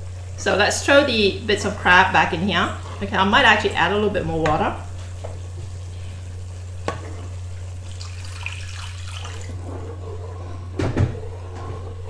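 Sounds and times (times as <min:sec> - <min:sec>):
steady low hum: 0:00.0 - 0:12.0
water poured into hot pan: 0:07.8 - 0:09.6.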